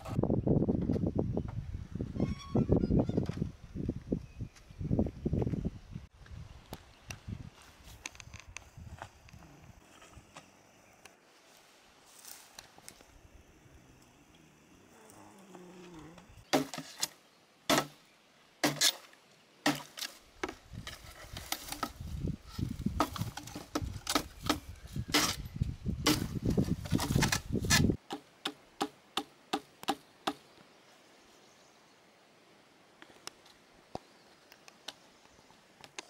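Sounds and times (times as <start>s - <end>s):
rustling dry leaves: 11.2s - 13.4s.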